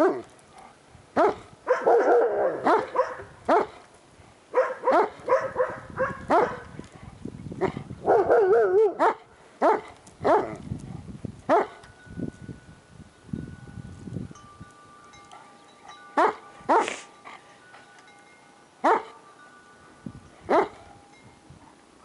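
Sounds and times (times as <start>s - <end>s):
dog barking: 1.2s - 3.8s, 4.5s - 6.8s, 8.0s - 10.6s, 11.5s - 11.8s, 16.2s - 17.0s, 18.8s - 19.2s, 20.5s - 20.8s.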